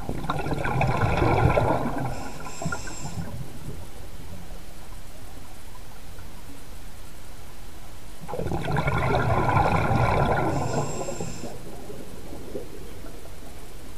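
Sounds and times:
gurgling rush of bubbles: 0.0 - 3.6, 8.2 - 13.9
steady underwater hiss: 0.0 - 13.9.

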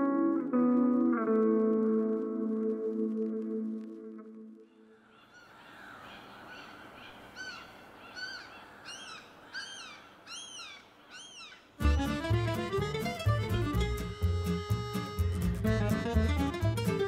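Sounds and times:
bird calling: 4.7 - 13.2.

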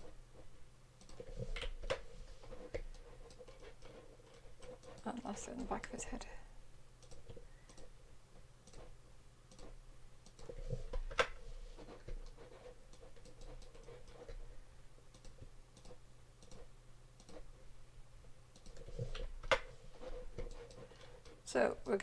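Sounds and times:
faint steady hum: 0.0 - 22.0
mouse and keyboard clicks: 15.1 - 17.4.

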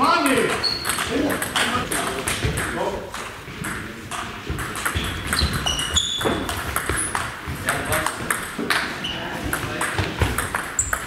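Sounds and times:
shoe squeaks on floor: 0.4 - 1.1, 4.8 - 7.2, 8.7 - 9.5
table tennis ball clicking: 0.5 - 8.9, 9.8 - 11.0.

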